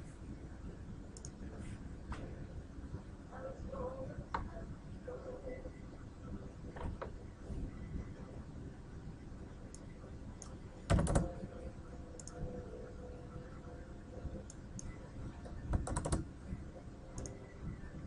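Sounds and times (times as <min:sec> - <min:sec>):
low steady background hum: 0:00.0 - 0:18.0
computer keyboard typing: 0:10.9 - 0:11.3, 0:15.7 - 0:16.3.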